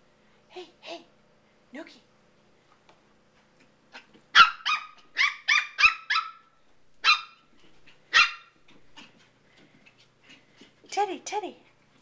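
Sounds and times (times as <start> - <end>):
puppy yapping: 3.9 - 9.1.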